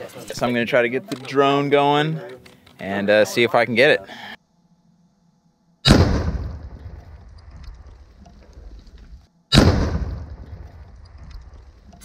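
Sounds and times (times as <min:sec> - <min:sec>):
explosion blast with rumble: 0:05.9 - 0:07.0, 0:09.5 - 0:10.8.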